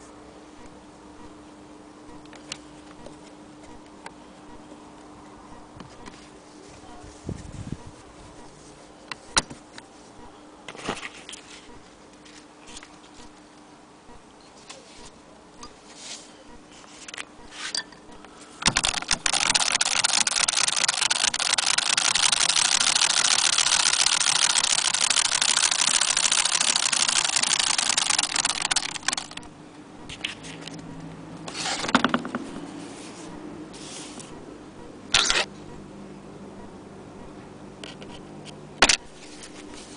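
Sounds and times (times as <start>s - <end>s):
sewing machine clatter: 18.6s - 29.4s.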